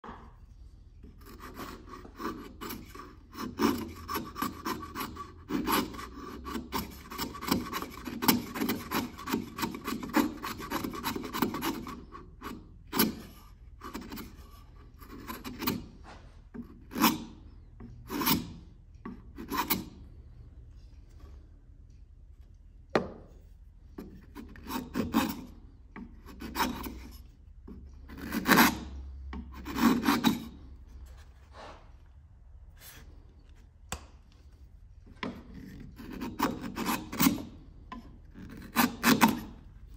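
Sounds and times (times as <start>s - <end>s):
chisel scraping wood shavings: 1.0s - 20.0s, 23.9s - 31.8s, 35.2s - 39.9s.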